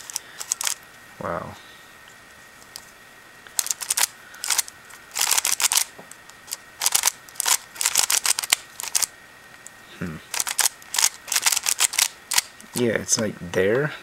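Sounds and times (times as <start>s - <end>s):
puzzle cube clicking as turned: 0.0s - 0.8s, 3.6s - 9.7s, 10.3s - 12.8s.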